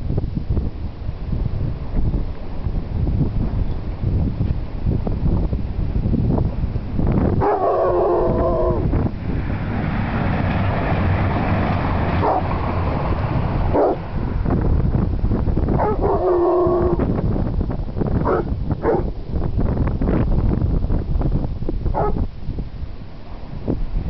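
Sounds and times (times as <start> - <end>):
wind noise on microphone: 0.0 - 24.0
dog barking: 7.4 - 8.8, 12.2 - 12.5, 13.7 - 14.0, 15.8 - 17.0, 18.2 - 19.1, 22.0 - 22.2.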